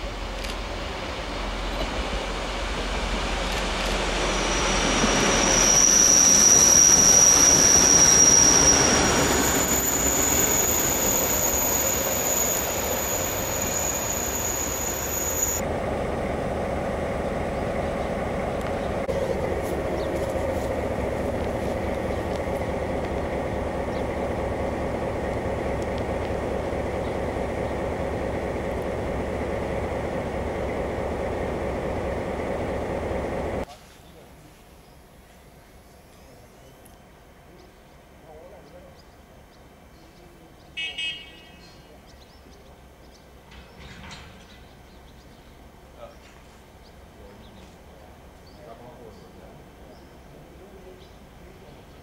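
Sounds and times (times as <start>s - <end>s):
train passing: 0.0s - 33.7s, 37.0s - 52.0s
wheels squealing on rails: 1.7s - 15.6s
diesel engine running: 7.3s - 33.6s.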